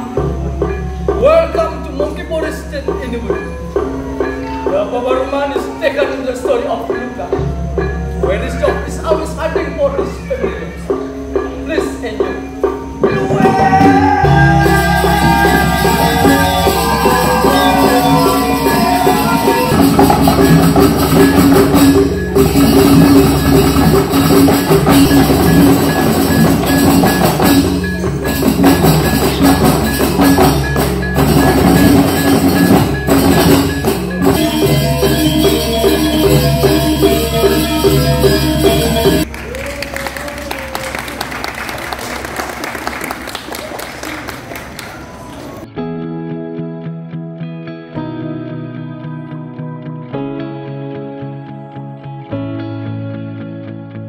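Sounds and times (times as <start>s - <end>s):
gamelan ensemble playing: 0.0s - 39.8s.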